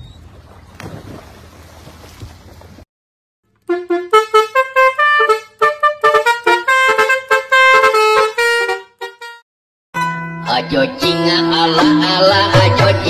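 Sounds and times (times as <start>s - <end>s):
wind and water noise: 0.0s - 2.8s
tune of honking horn-like notes: 3.6s - 9.4s, 10.0s - 12.9s.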